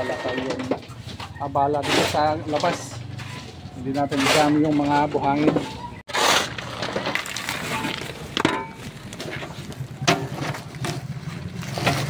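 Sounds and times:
hard objects knocking and clattering: 6.5s - 12.0s.

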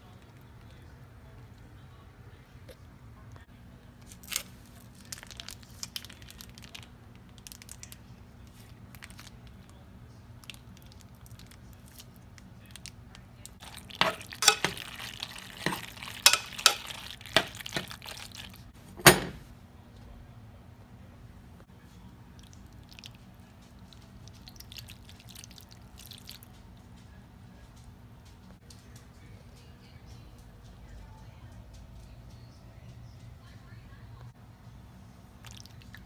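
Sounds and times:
foil pouch crinkling: 4.0s - 9.5s.

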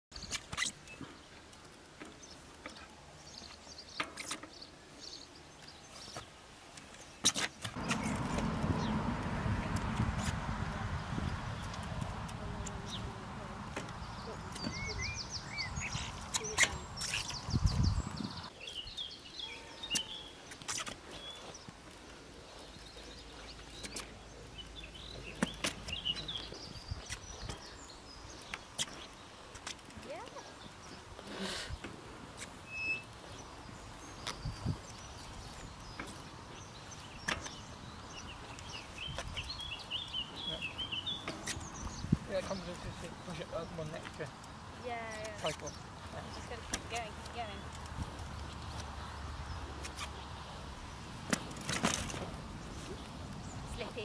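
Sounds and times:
faint birds chirping: 0.1s - 54.0s
bike clicks and knocks: 6.8s - 8.9s, 37.2s - 37.7s, 51.2s - 52.9s
steady low rushing noise: 7.8s - 18.5s.

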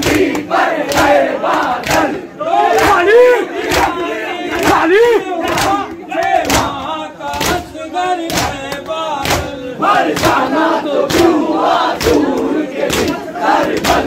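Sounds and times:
hands slapping chests: 0.0s - 2.2s, 3.6s - 4.0s, 5.5s - 10.5s, 12.0s - 14.0s
men chanting together: 0.0s - 14.0s.

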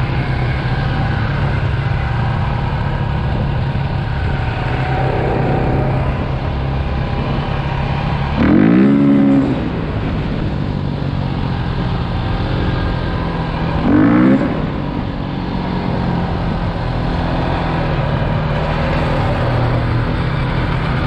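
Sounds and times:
quad bike engine running: 0.0s - 21.0s
wind noise: 0.0s - 21.0s
brief wavering sound: 4.0s - 7.4s.

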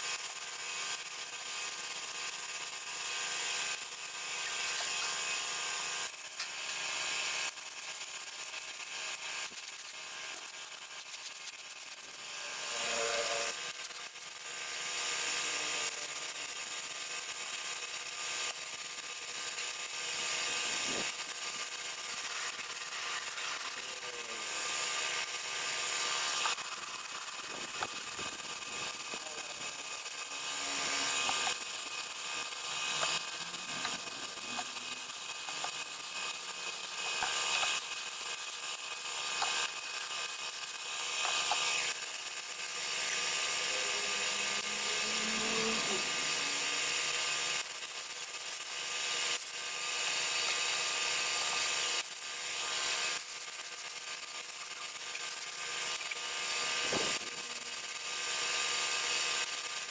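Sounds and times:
machinery whine and hiss: 11.9s - 16.3s, 19.3s - 59.9s.

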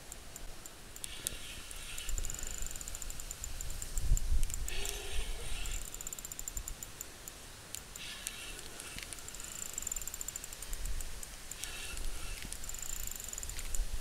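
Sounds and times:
fishing reel cranking with ticking: 0.6s - 7.0s, 7.8s - 14.0s
wind rumbling on microphone: 3.1s - 5.9s.

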